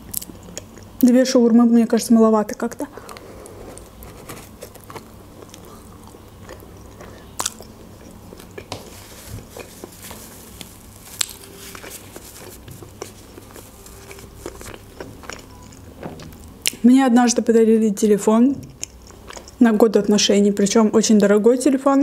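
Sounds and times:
wet chewing and mouth clicks: 0:10.6 - 0:16.8, 0:18.6 - 0:19.6.

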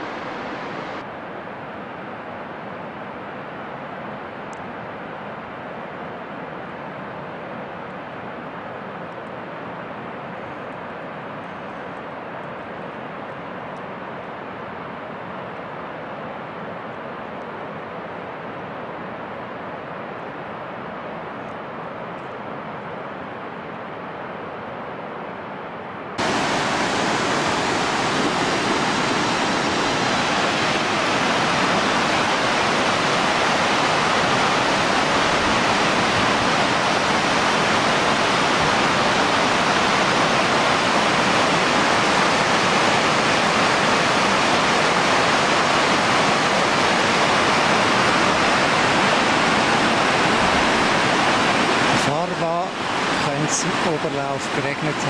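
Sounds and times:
steady hiss: 0:00.0 - 0:01.0, 0:26.2 - 0:55.0
river water rushing: 0:00.0 - 0:01.1, 0:26.2 - 0:55.0.

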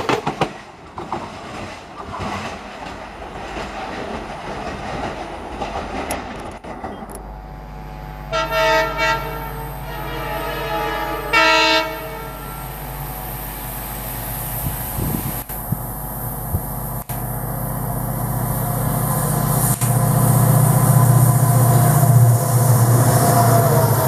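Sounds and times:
train coaches rattling over rail joints: 0:00.0 - 0:07.1
diesel locomotive engine running: 0:02.6 - 0:24.0
multi-tone train horn: 0:07.4 - 0:13.9, 0:20.9 - 0:24.0.

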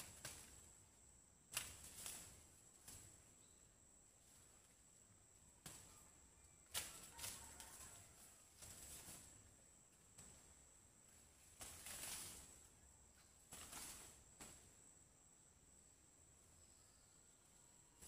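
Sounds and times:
faint high-pitched hiss: 0:00.0 - 0:18.0
faint rustling swishes: 0:10.2 - 0:12.8.

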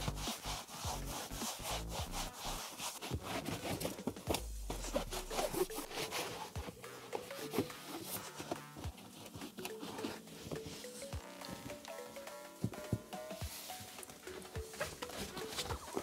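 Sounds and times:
cloth scrubbing carpet: 0:00.0 - 0:08.5.

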